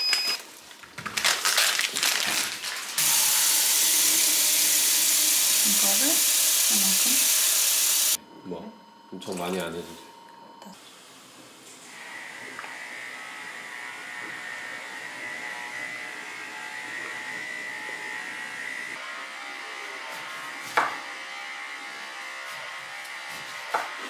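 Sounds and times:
electric hair clippers buzzing: 3.0 - 8.2, 11.9 - 24.0.

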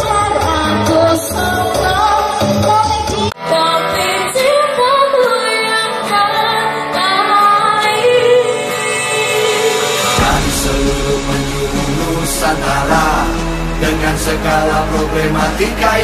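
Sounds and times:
woman singing: 0.0 - 10.9.

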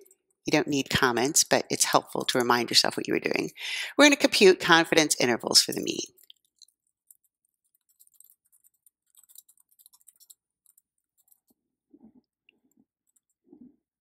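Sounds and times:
keyboard typing: 5.4 - 11.6, 12.5 - 13.5.

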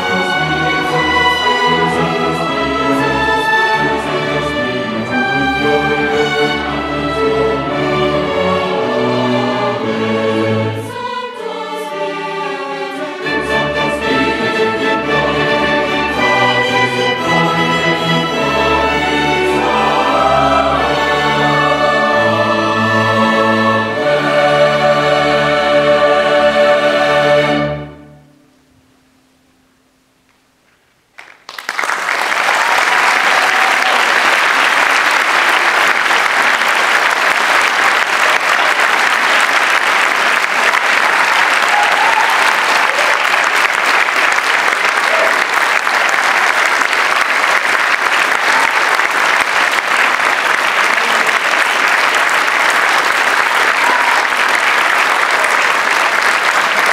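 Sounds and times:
large audience applauding: 31.2 - 56.9.

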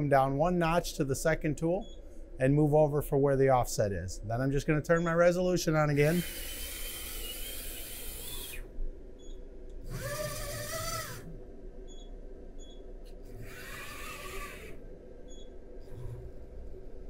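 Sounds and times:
servo motor whine: 6.0 - 8.7, 9.9 - 11.4, 13.3 - 14.8.

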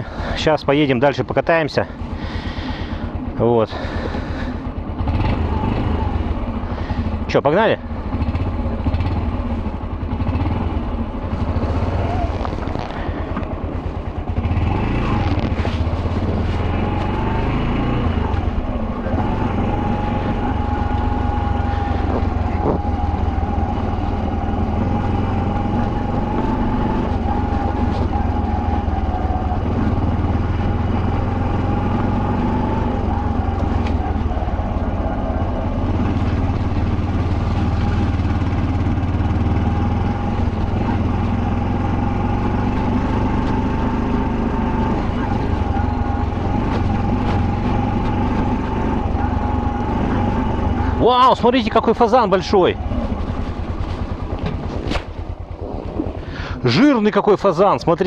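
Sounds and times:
motorcycle engine running: 0.0 - 58.0
wind and road rumble: 0.0 - 58.0.

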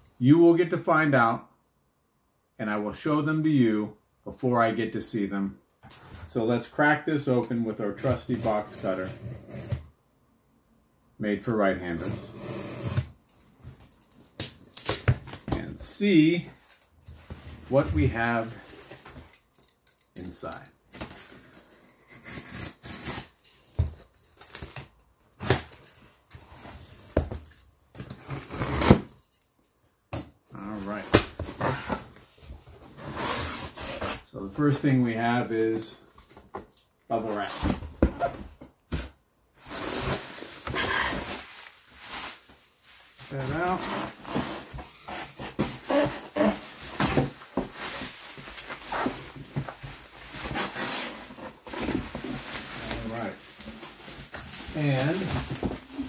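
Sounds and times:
tape tearing: 14.1 - 15.6, 22.1 - 25.8, 27.9 - 29.3, 43.3 - 56.0
bubble wrap crinkling and rustling: 39.6 - 56.0
cardboard scraping: 39.6 - 56.0
plastic squeaks: 45.6 - 47.3.

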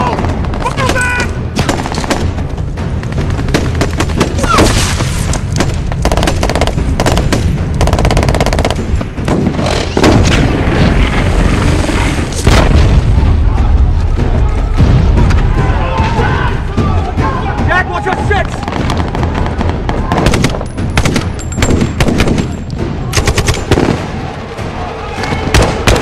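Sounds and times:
booms: 8.8 - 17.0.

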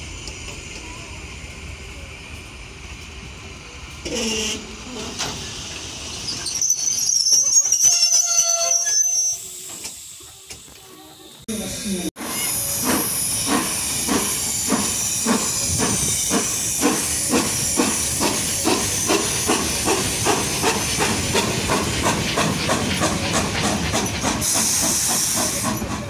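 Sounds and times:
steam hissing: 0.0 - 26.0
steam locomotive exhaust chuffs: 12.2 - 26.0.

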